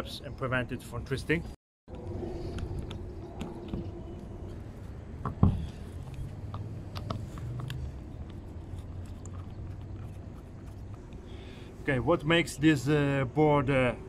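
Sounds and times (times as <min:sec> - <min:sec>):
small clicks and rubbing: 0:05.7 - 0:11.3.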